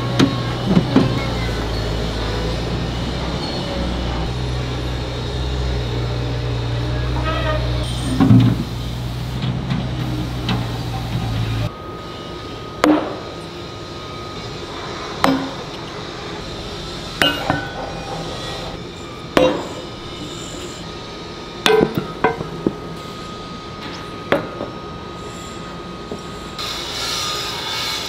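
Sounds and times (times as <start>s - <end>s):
sledgehammer clanking on iron: 15.2s - 15.7s, 17.2s - 18.6s, 19.4s - 19.9s, 21.6s - 22.6s.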